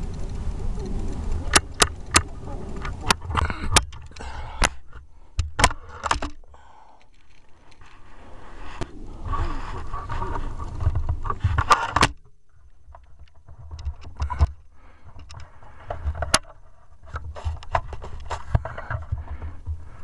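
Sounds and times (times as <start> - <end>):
sharp clicks: 0.0 - 8.0
rifle handling bumps and rubbing: 8.7 - 20.0.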